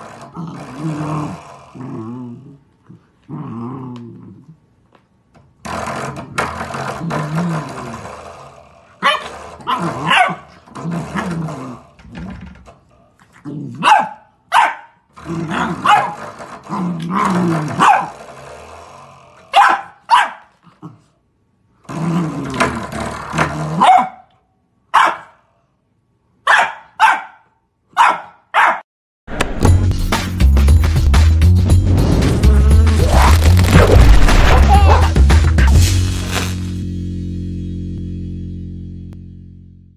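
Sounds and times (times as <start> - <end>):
puppy growling: 0.0 - 4.6, 5.7 - 12.4, 13.2 - 13.9, 15.2 - 19.6, 21.8 - 23.8.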